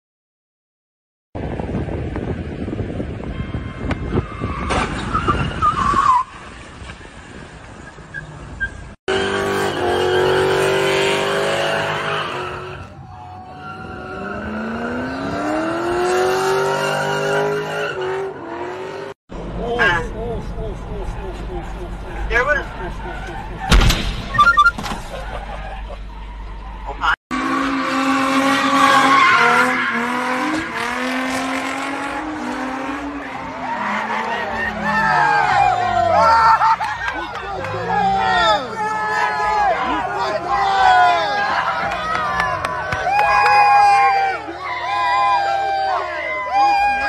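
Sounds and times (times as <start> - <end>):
car engine revving hard: 9.1 - 12.7, 14.0 - 19.2, 27.3 - 36.0.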